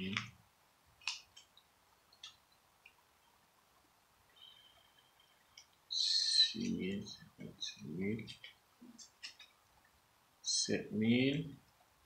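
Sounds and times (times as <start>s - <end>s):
faint high bird chirp: 4.3s - 6.7s.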